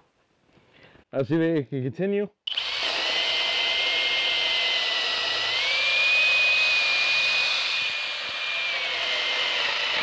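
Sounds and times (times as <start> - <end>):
drill motor whining under load: 2.5 - 10.0.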